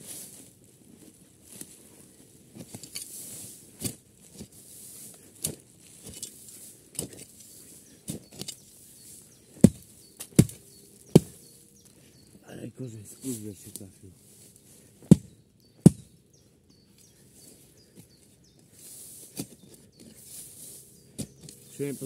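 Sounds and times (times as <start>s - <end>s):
shovel striking and scraping soil: 2.5s - 11.6s, 13.7s - 16.2s, 18.8s - 22.0s.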